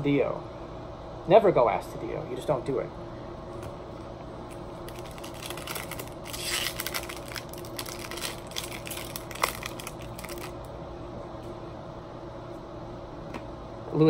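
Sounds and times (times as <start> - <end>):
steady low hum: 0.0 - 14.0
foil wrapper crinkling: 4.9 - 10.6.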